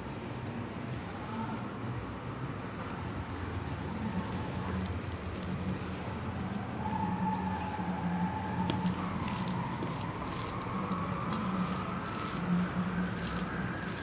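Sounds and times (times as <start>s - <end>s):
wet chewing and lip smacks: 8.1s - 14.0s.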